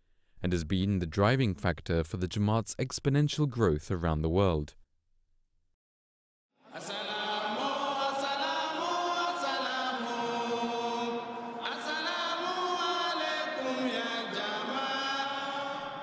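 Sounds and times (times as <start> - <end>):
crowd chanting in unison: 6.6 - 16.0.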